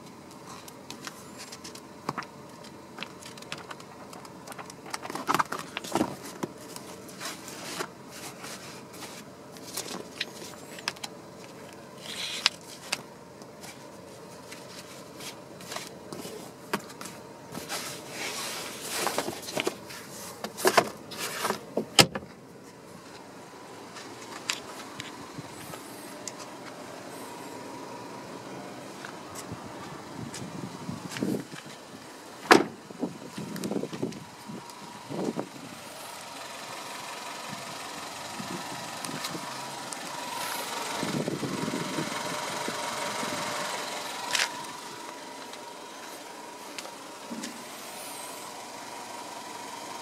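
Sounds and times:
paper pages flipping and sliding: 0:00.5 - 0:21.7.

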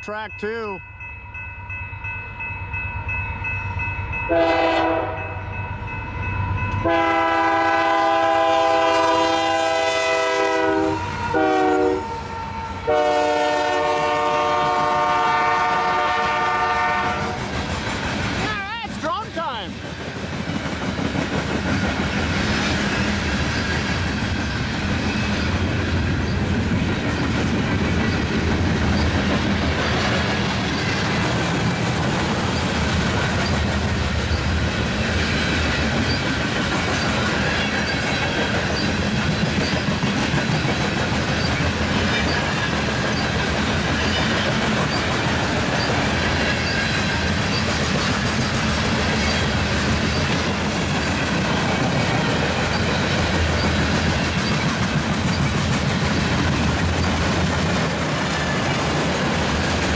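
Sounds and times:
freight train cars rolling: 0:02.0 - 0:59.9
wheels clicking over rail joints: 0:25.0 - 0:59.9.

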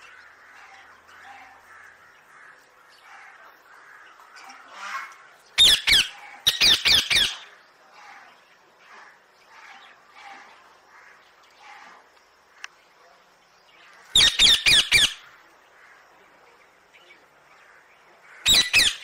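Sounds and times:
soft bird calls: 0:00.0 - 0:19.0
parakeets squawking: 0:14.2 - 0:15.2, 0:18.4 - 0:19.0.

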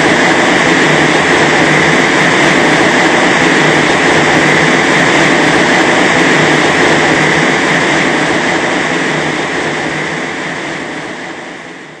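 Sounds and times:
loud rush of air: 0:00.0 - 0:11.5.

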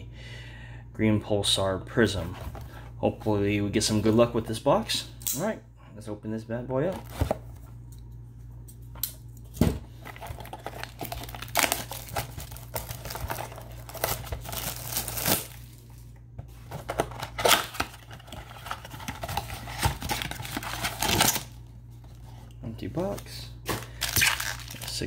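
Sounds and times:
steady low hum: 0:00.0 - 0:25.0
plastic wrap crinkling and tearing: 0:10.0 - 0:16.1, 0:16.8 - 0:21.6, 0:23.7 - 0:25.0.

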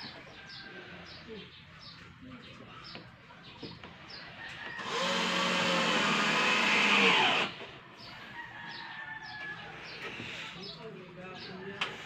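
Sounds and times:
cordless drill driving screw: 0:04.8 - 0:07.6.

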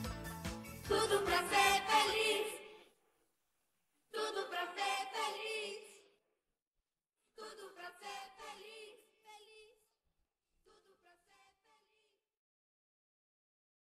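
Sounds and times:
pop song backing music: 0:00.0 - 0:02.7
high voices singing unaccompanied: 0:00.9 - 0:02.8, 0:04.1 - 0:06.1, 0:07.4 - 0:09.8.

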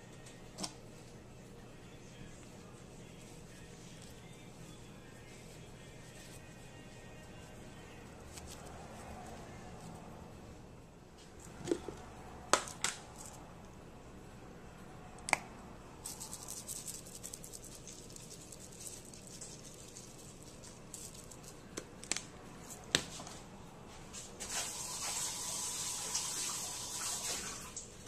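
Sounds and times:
seasoning shaker rattling: 0:16.0 - 0:21.7.

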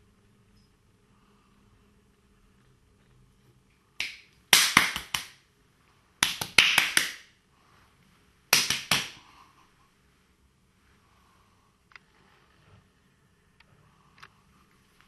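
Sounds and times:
loud sharp snaps: 0:04.0 - 0:05.4, 0:06.2 - 0:07.3, 0:08.5 - 0:09.2.

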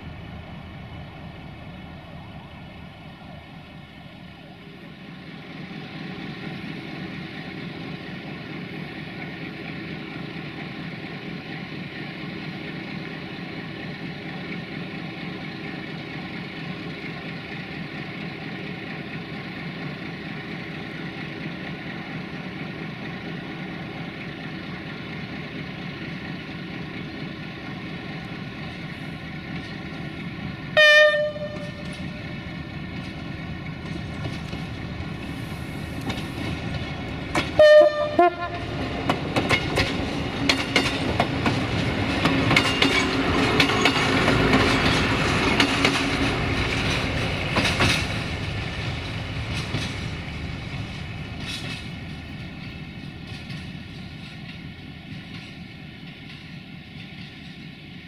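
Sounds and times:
diesel railcar engine running: 0:00.0 - 0:58.0
train horn blast: 0:30.8 - 0:32.0, 0:37.6 - 0:38.8.

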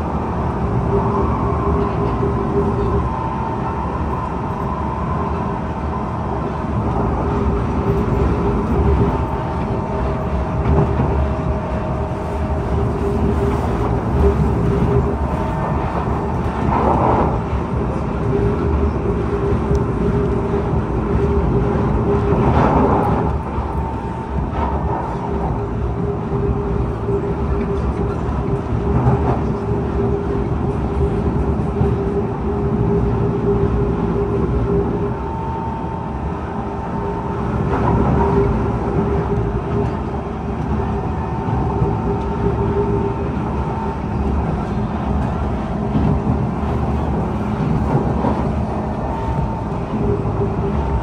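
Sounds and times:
train wheels rumbling on rail: 0:00.0 - 0:51.0.

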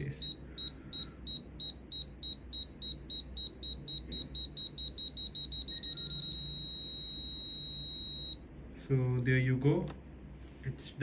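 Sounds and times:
muffled buzzer beeping: 0:00.0 - 0:08.4.

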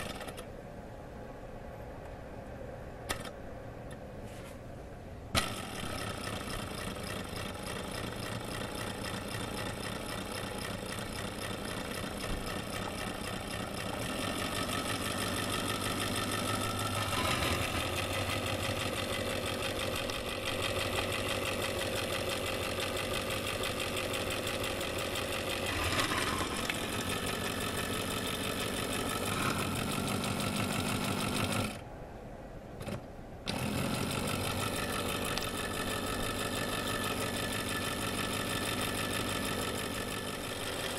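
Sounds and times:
small electric motor whirring: 0:05.4 - 0:31.8
fine fast ticking: 0:05.5 - 0:17.1.

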